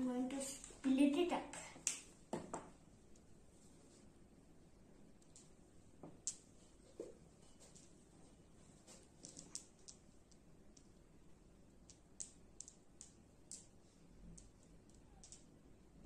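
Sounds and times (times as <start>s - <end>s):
glass pebbles clicking: 9.2s - 10.1s, 11.9s - 15.6s.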